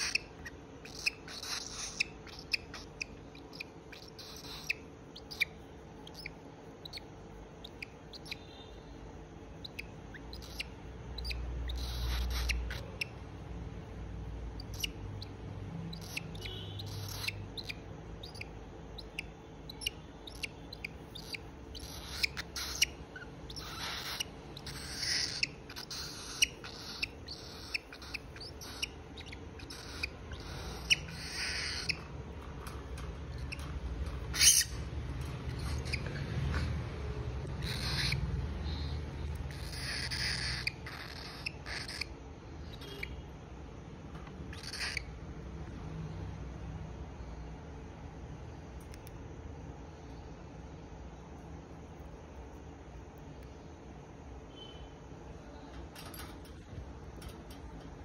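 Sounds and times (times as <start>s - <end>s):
cockatiel scratchy calls: 0.0s - 8.8s, 9.6s - 13.2s, 14.5s - 43.2s, 44.5s - 45.1s.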